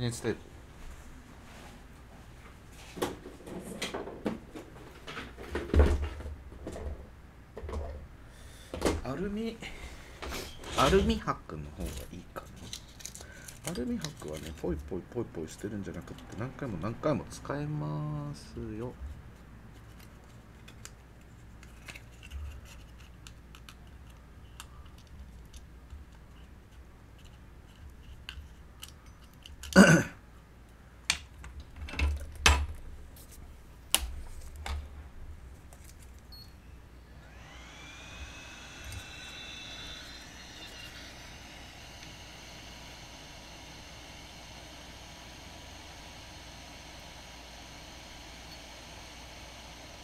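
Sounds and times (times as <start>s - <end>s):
aluminium foil crinkling: 12.0s - 14.8s.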